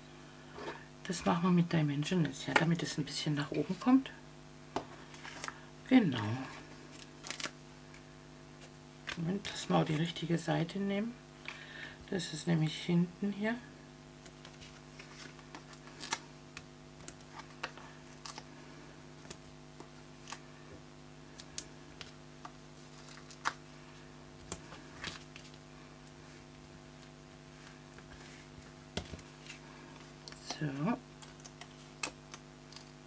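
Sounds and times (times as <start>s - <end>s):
steady electrical hum: 0.0s - 33.0s
cardstock rustling: 14.4s - 16.2s, 22.8s - 23.6s.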